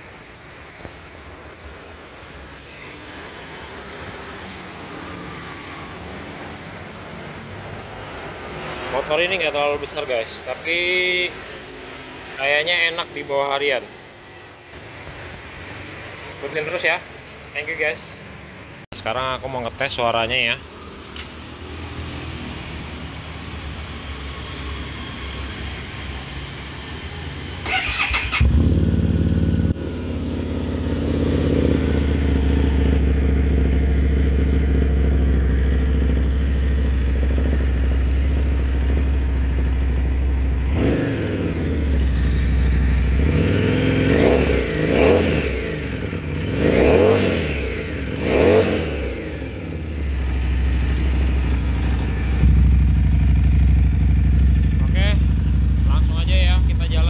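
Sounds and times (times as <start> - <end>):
motorcycle engine starting and revving: 27.6 - 57.0.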